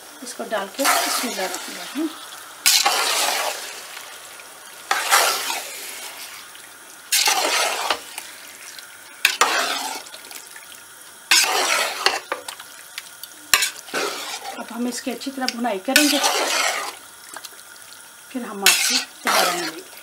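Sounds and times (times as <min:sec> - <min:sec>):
chicken sizzling in hot oil: 0:00.0 - 0:20.0
metal spoon stirring in pot: 0:00.7 - 0:01.9, 0:02.6 - 0:04.0, 0:04.9 - 0:06.3, 0:07.1 - 0:10.5, 0:11.3 - 0:12.7, 0:13.5 - 0:17.6, 0:18.6 - 0:20.0.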